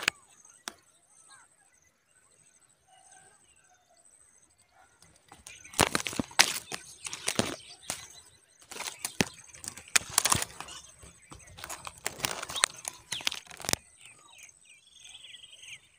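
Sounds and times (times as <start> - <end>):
twigs and grass rustling: 5.0 - 14.6.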